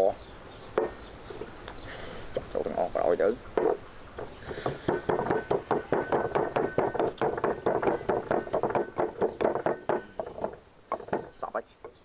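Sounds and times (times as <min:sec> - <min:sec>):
pestle pounding in mortar: 0:03.5 - 0:11.4.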